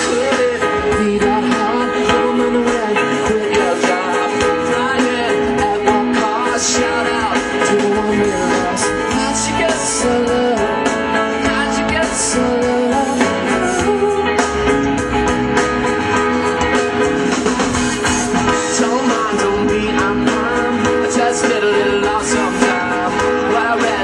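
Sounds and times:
man singing: 0.0 - 15.1, 16.2 - 24.0
live rock band playing: 0.0 - 24.0.

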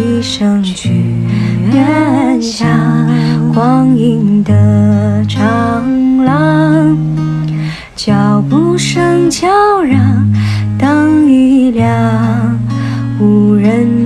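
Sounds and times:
strummed acoustic guitar: 0.0 - 14.0
woman singing a slow ballad: 0.0 - 14.0.

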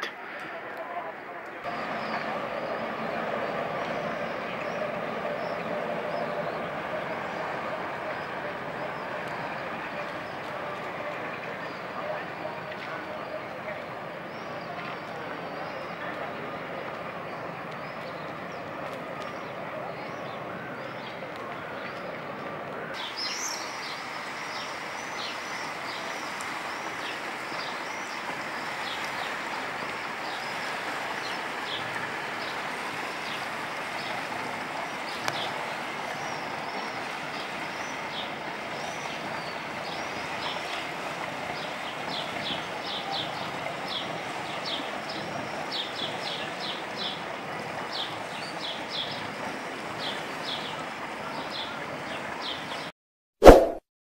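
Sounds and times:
outdoor background noise: 0.0 - 53.8.

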